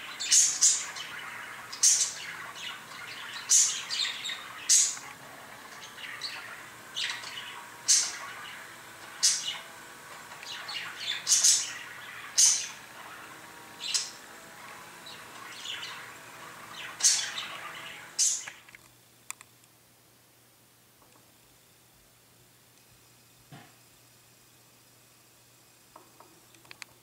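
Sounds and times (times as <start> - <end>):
budgerigar chattering: 0.0 - 9.7, 10.4 - 14.3, 15.0 - 18.6
sharp high bird chirps: 0.0 - 14.3, 15.0 - 18.7
faint clicks: 18.4 - 19.7.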